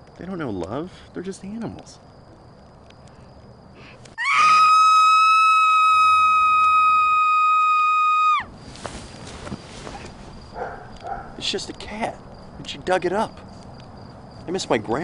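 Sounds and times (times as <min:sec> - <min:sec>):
woman screaming: 0:04.2 - 0:08.5.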